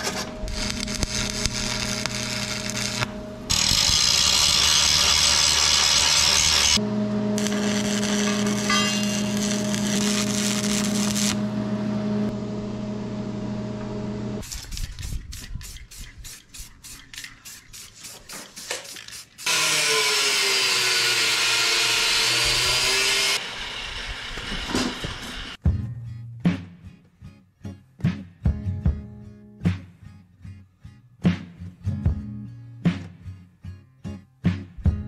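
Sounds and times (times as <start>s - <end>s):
arc welding buzz and crackle: 0.0s - 11.5s, 19.4s - 25.6s
spray paint can hissing: 14.4s - 19.5s.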